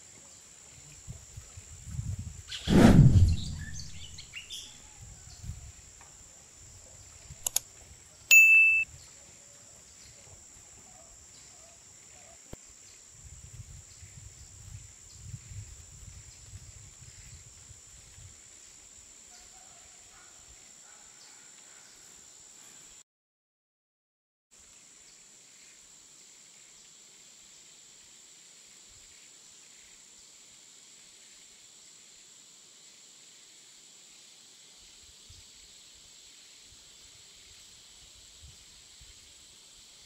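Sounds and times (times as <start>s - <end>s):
faint bird chirps: 2.5s - 5.1s
click: 7.4s - 7.6s
bright electronic ding: 8.3s - 8.8s
high insect drone: 8.9s - 23.0s, 24.6s - 40.0s.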